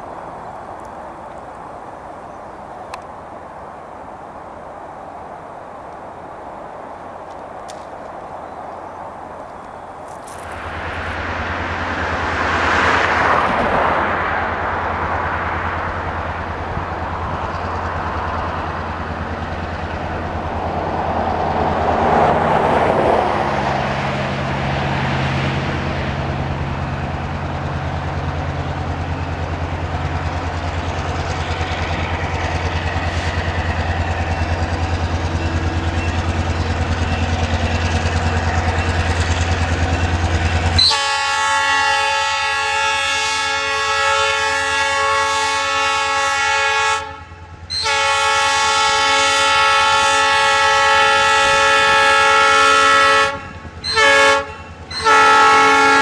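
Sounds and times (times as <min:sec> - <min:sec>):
broad rushing swells: 0:00.0 - 0:43.8
diesel locomotive engine rumble: 0:00.0 - 0:56.0.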